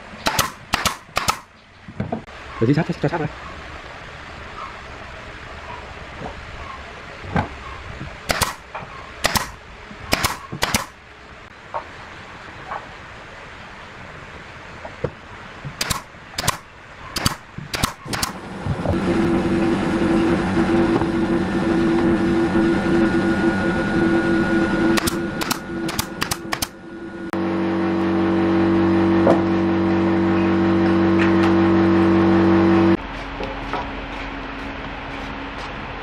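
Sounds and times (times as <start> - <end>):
steady motor hum: 17.6 - 36.0.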